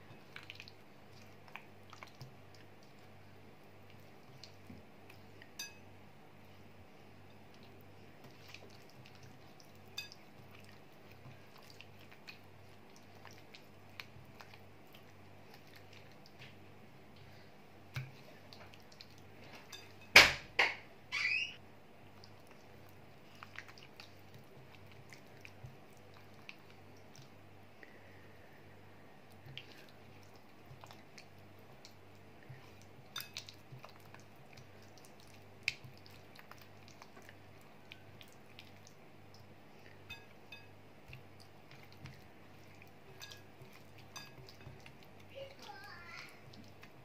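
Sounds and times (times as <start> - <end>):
faint low hum: 0.0 - 47.0
clink against glass bowl: 5.6 - 5.8.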